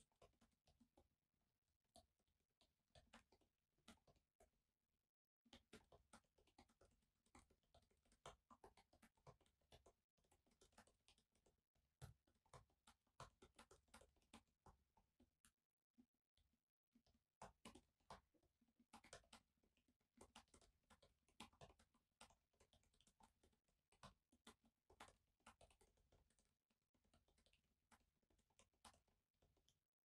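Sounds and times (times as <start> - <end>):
typing on laptop keyboard: 1.9 - 4.5, 5.5 - 15.6, 17.0 - 30.0.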